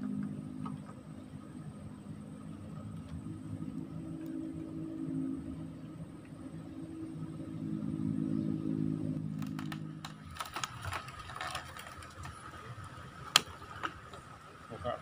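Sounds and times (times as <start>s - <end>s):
low motor hum: 0.0s - 15.0s
mechanical clicks and ticks: 9.4s - 12.6s.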